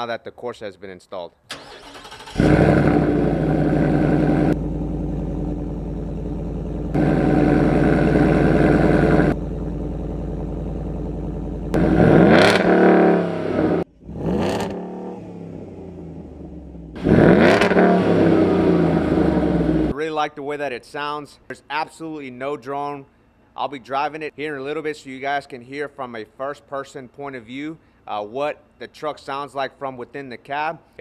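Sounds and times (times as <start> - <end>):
car engine idling and revving: 1.8 - 19.9.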